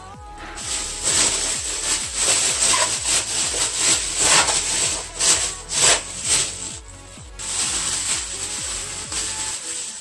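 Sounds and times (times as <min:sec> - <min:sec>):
plastic bag crinkling: 0:00.6 - 0:10.0.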